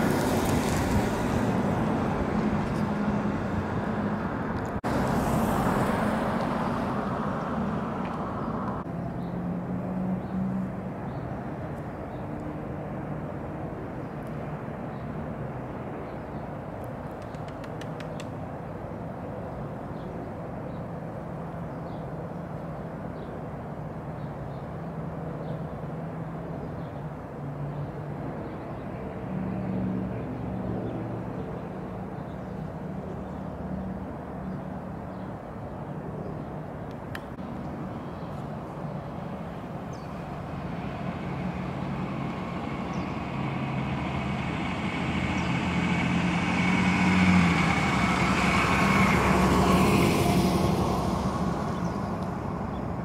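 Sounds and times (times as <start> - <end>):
vehicle engine humming: 36.9 - 53.0.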